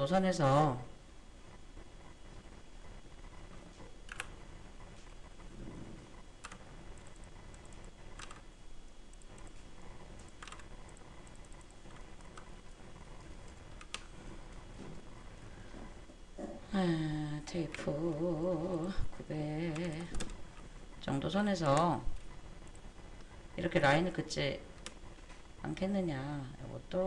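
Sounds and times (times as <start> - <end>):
keyboard ticks: 6.4 - 8.4, 10.2 - 12.5, 13.4 - 14.1
mouse clicks: 10.2 - 12.5.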